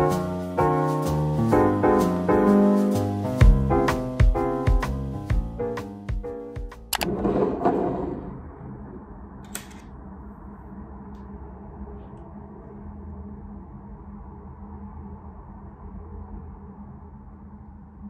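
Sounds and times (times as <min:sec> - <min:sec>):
piano music: 0:00.0 - 0:07.0
steady low hum: 0:08.0 - 0:18.0.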